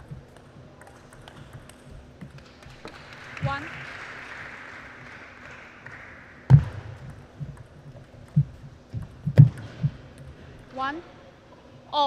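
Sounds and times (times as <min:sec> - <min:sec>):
table tennis ball clicks: 0:00.0 - 0:03.6.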